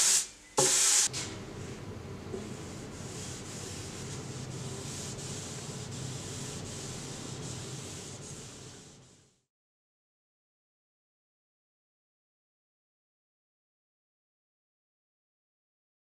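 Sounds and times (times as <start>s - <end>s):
cloth rag rubbing wood: 2.4s - 9.4s.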